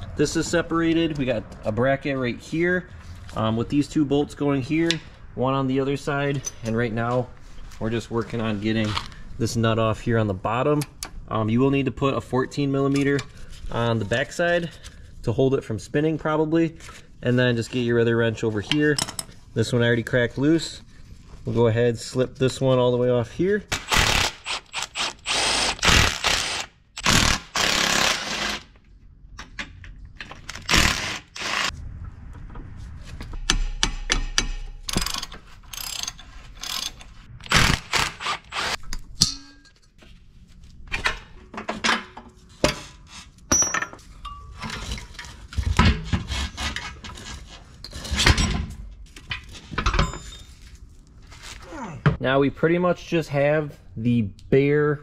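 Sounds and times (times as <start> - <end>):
wrench clicks and metal clanks: 33.4 - 39.8.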